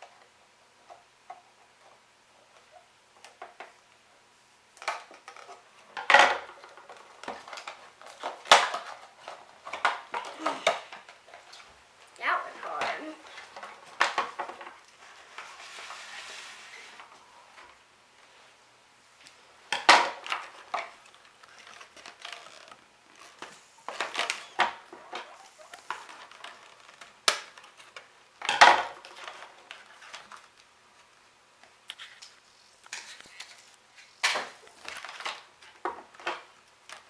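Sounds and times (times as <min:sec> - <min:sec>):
packaging rustling and crinkling: 0:20.1 - 0:28.1.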